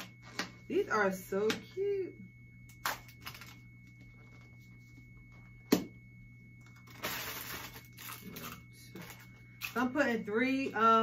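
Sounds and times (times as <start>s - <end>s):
plastic wrappers crinkling: 6.7s - 9.8s.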